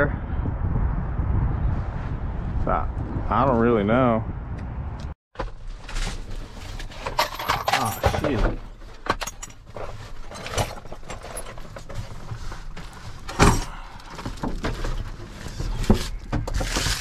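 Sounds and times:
tool bag rustling: 5.8s - 17.0s
things knocking and clicking: 6.8s - 12.4s.

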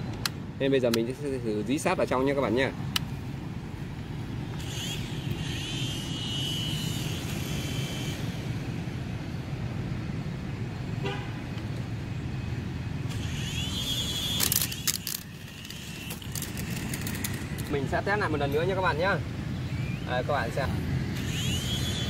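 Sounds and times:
small electric rotor motor whine: 4.5s - 9.1s, 13.1s - 17.7s, 19.9s - 22.0s
toy helicopter clacking on stone: 14.2s - 17.7s.

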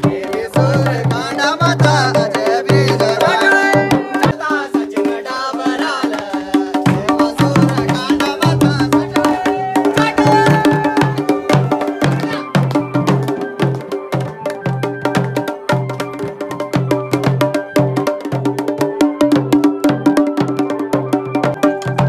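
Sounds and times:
barrel drums in fast rhythm: 0.0s - 22.0s.

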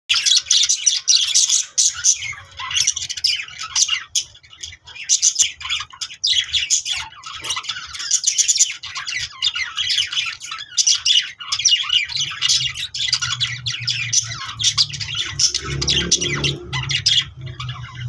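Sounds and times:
budgerigars chirping: 0.1s - 18.0s.

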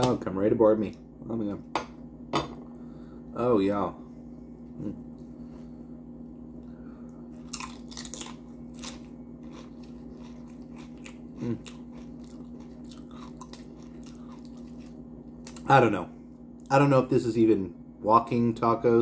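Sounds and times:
chips crunching while chewed: 7.4s - 15.8s.

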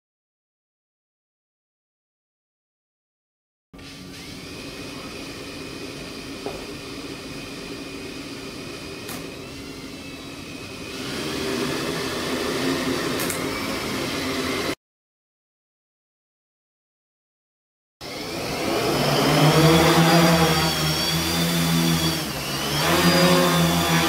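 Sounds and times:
drone motors whining: 3.8s - 14.8s, 18.0s - 24.0s.

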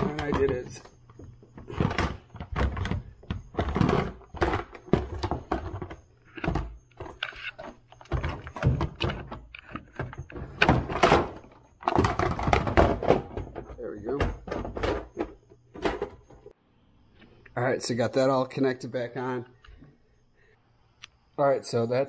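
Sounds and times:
plastic parts thunking: 0.0s - 16.5s.

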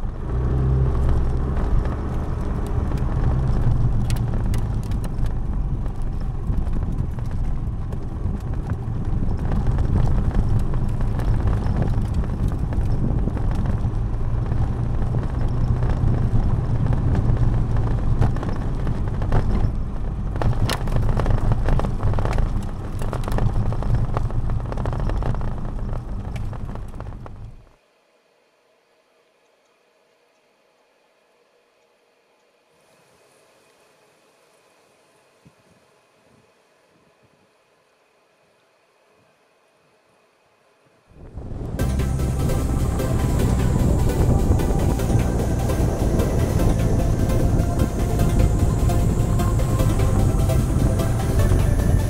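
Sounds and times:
scooter engine running: 0.0s - 27.6s, 41.4s - 52.0s
knocks and crunches from gravel: 3.0s - 27.5s.

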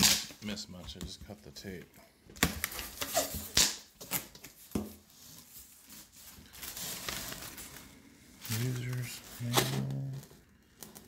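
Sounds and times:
paper rustling: 4.0s - 11.0s.

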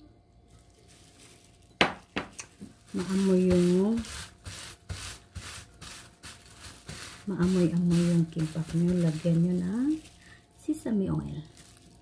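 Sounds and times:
hands rubbing seaweed sheet: 2.6s - 10.4s.

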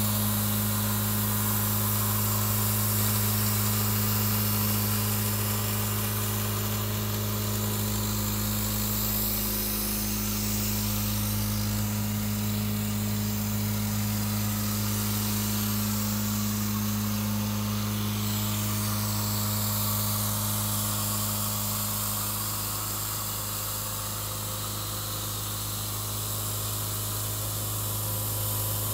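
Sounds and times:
blower deep hum: 0.0s - 28.9s
rushing air hiss: 0.0s - 28.9s.

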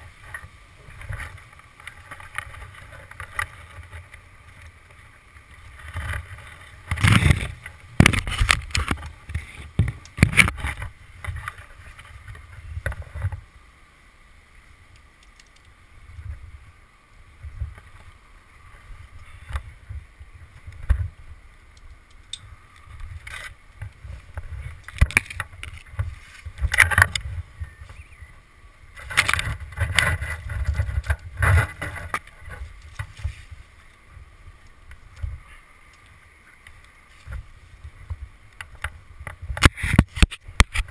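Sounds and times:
wind rumble on microphone: 0.0s - 13.7s, 14.6s - 40.9s.

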